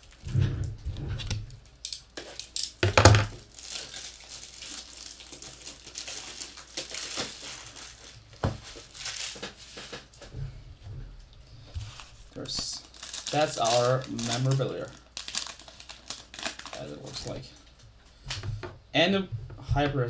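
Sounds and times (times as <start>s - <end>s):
plastic wrapper crinkling and tearing: 1.2s - 10.0s, 11.7s - 17.7s.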